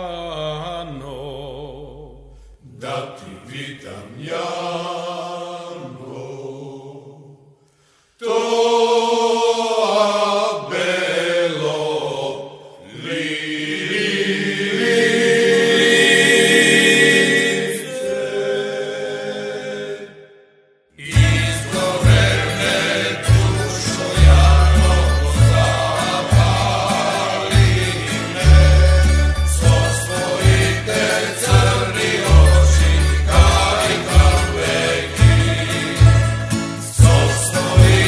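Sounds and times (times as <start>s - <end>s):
male choir singing folk song: 2.6s - 7.5s, 8.2s - 20.3s, 21.0s - 38.0s
tamburica orchestra: 21.0s - 38.0s.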